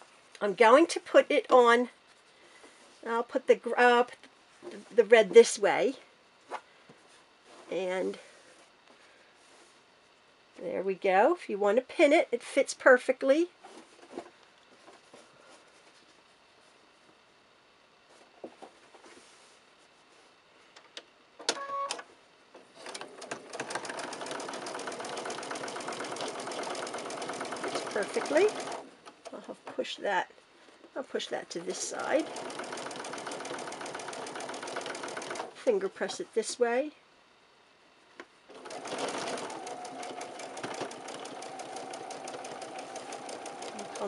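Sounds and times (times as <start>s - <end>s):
sewing machine beep: 21.5s - 22.0s
sewing machine stitching: 22.8s - 28.9s, 31.6s - 35.6s, 38.5s - 44.0s.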